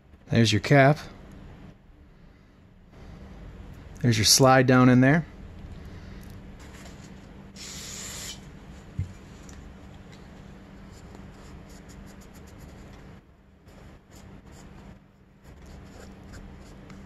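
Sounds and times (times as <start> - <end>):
aerosol spray hiss: 7.6 - 8.4.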